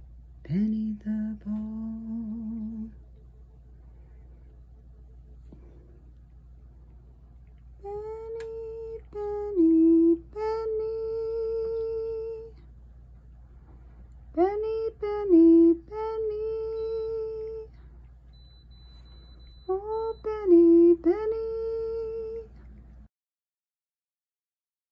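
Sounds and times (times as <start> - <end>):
woman humming: 7.8 - 12.7, 19.7 - 22.6.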